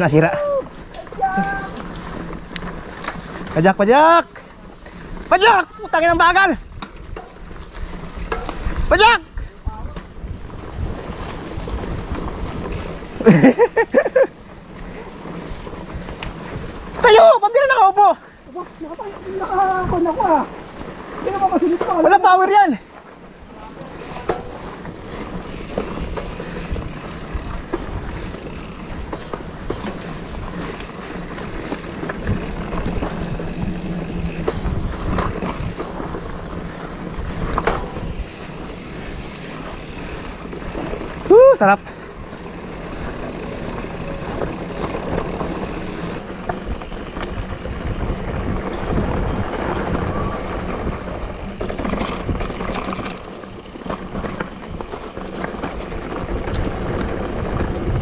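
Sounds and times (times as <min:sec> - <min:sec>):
rider calling out: 0:00.0 - 0:02.3, 0:03.4 - 0:10.4, 0:16.8 - 0:24.8, 0:37.9 - 0:46.3
bike tyres rumbling on trail: 0:00.0 - 0:58.0
wind on microphone: 0:04.7 - 0:13.3, 0:30.1 - 0:53.1, 0:55.8 - 0:58.0.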